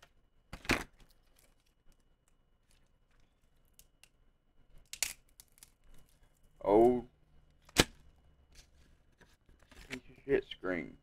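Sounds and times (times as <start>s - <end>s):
rustle of phone parts: 0.9s - 4.2s.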